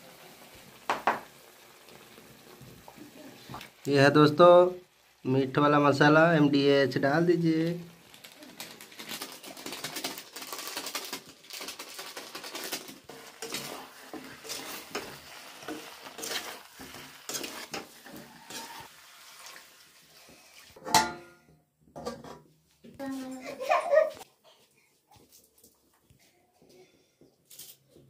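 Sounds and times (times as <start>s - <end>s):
food sizzling: 0.0s - 21.2s
metal spatula scraping a wok: 13.1s - 19.5s.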